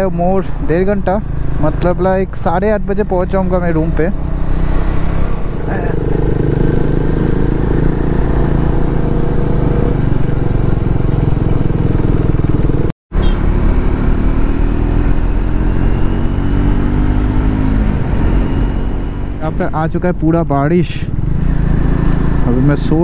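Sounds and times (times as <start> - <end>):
motorcycle engine running: 0.6 - 23.0
rushing wind noise: 14.5 - 19.6.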